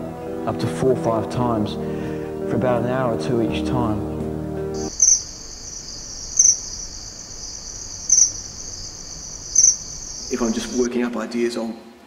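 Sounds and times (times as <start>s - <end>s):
high-pitched insect trill: 4.8s - 10.9s.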